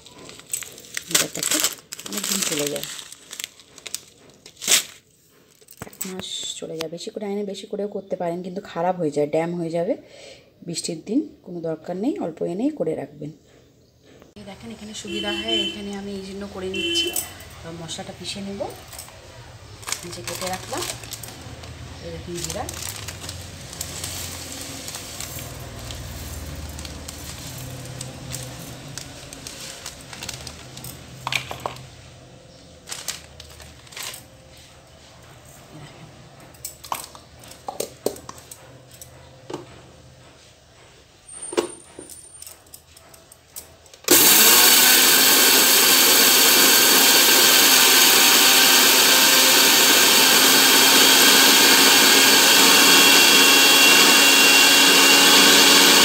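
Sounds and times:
electric mixer grinder running: 19.8 - 31.8, 44.1 - 56.0.

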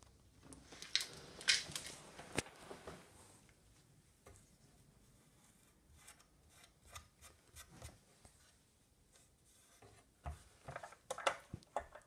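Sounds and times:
hands rubbing and clicking parts: 0.5 - 2.5.

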